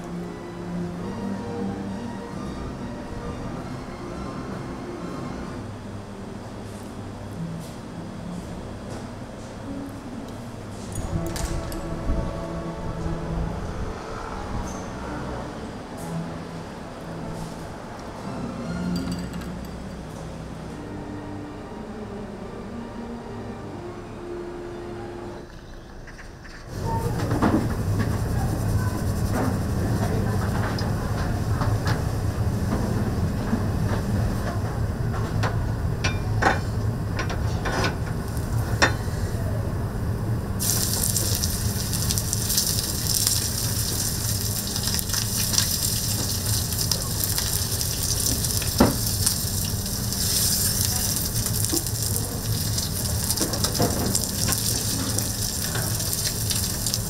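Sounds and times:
steady low hum: 26.7s - 57.0s
steak sizzling: 40.6s - 57.0s.

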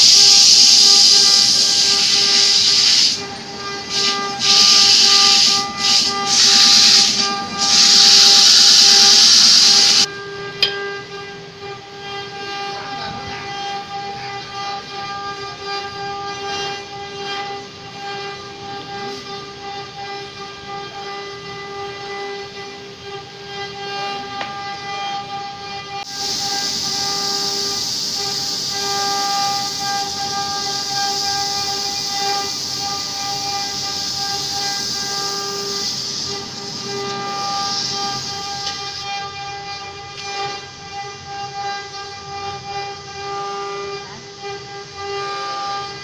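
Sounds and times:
sandpaper hissing on spinning wood: 0.0s - 10.1s, 12.0s - 46.0s
lathe motor humming: 0.0s - 14.9s, 26.0s - 40.0s.

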